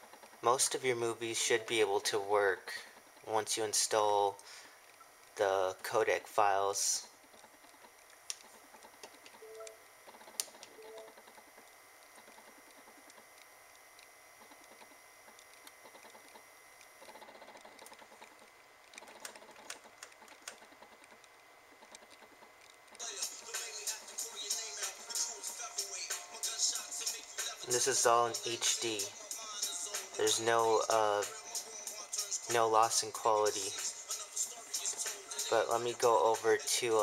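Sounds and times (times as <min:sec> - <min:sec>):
film soundtrack music from tv: 0:23.0 - 0:27.8, 0:28.4 - 0:30.2, 0:31.3 - 0:32.5, 0:33.7 - 0:35.5.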